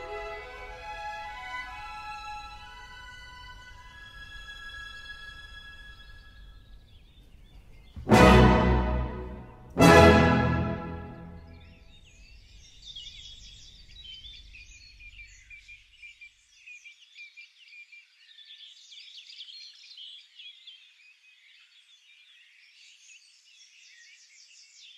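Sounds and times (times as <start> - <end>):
birds chirping and trilling: 2.4 - 8.0, 11.0 - 24.9.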